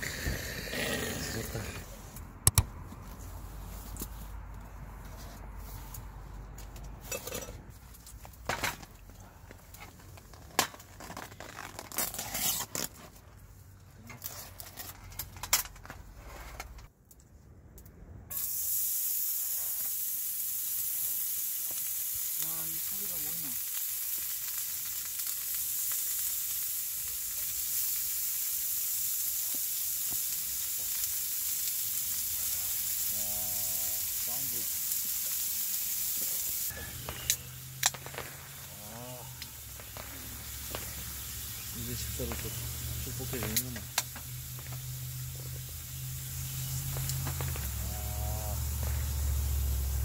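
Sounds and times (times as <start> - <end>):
meat sizzling in a skillet: 18.3 - 50.0.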